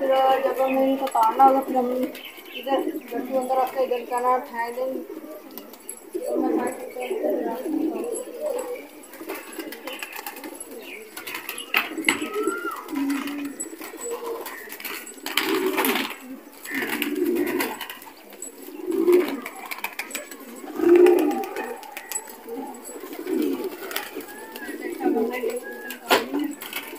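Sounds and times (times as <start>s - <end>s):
pigeons cooing: 0.0s - 26.9s
wings fluttering: 8.5s - 26.9s.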